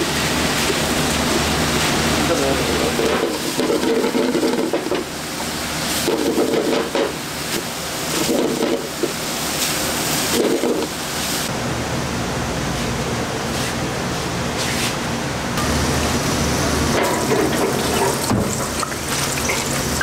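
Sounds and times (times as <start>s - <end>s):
bacon sizzling in a wok: 0.0s - 11.5s, 15.6s - 20.0s
spatula stirring and scraping: 3.0s - 11.5s.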